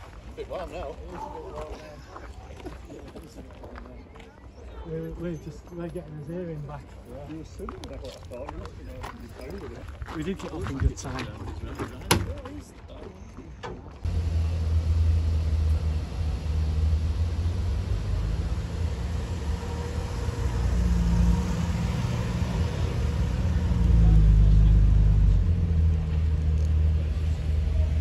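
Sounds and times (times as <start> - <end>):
car engine deep rumble: 14.0 - 28.0.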